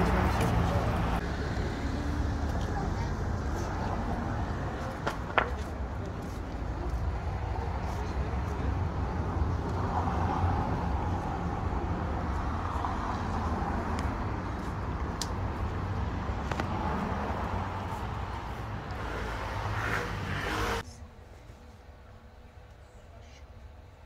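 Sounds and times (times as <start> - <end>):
low rumble of traffic: 0.0 - 24.0.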